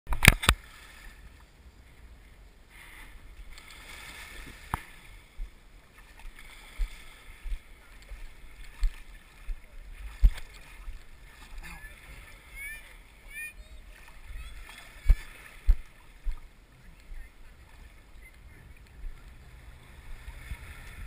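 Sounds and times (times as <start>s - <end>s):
soft low thumps: 4.6s - 5.6s, 6.8s - 11.1s, 18.1s - 21.0s.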